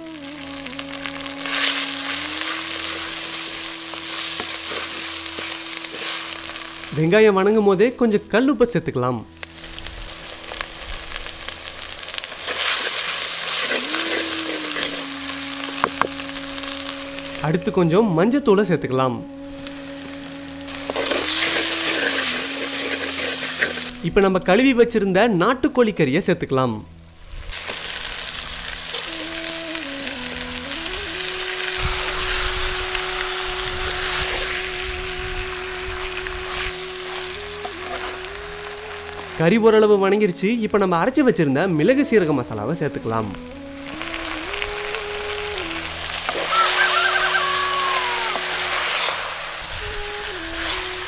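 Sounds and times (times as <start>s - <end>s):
food sizzling in oil: 0.0s - 8.2s, 9.3s - 17.7s, 19.3s - 24.0s, 27.2s - 39.4s, 43.0s - 51.0s
wooden spatula turning food: 0.2s - 7.0s, 9.4s - 17.6s
wooden spatula stirring: 0.6s - 7.0s.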